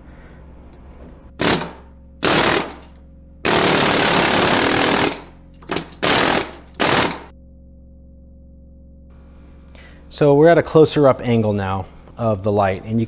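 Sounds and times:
pneumatic air hammer rattling: 1.4 - 2.9, 3.5 - 7.3.

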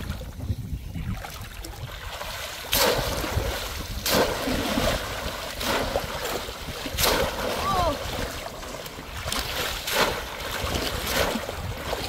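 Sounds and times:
fish trap splashing into water: 2.0 - 8.5, 9.2 - 12.0.

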